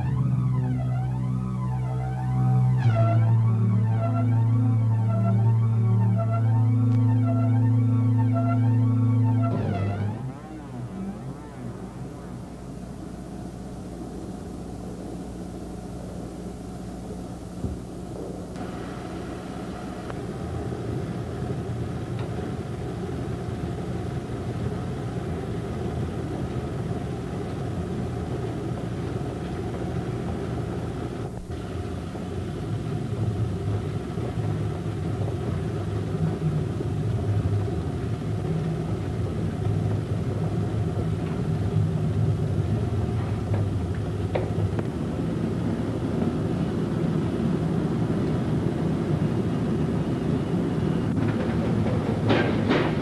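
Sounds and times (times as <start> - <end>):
held low tones: 0.0 - 25.8
low droning rumble: 0.0 - 53.0.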